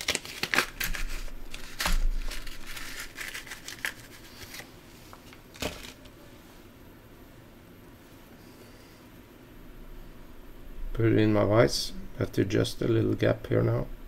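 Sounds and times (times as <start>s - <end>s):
packet rustling and crinkling: 0.0s - 6.1s.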